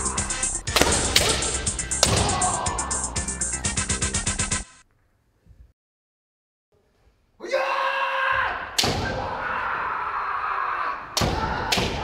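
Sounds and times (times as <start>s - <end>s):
long kiai shout: 0.0s - 0.5s, 2.0s - 3.2s, 7.4s - 12.0s
bamboo sword strike crack: 0.7s - 2.3s.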